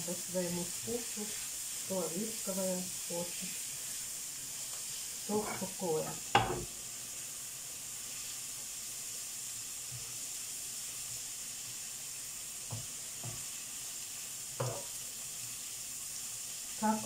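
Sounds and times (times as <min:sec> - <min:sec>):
food sizzling in a frying pan: 0:00.0 - 0:17.0
spatula knocking on pan: 0:05.4 - 0:06.7, 0:12.7 - 0:13.5, 0:14.6 - 0:14.9.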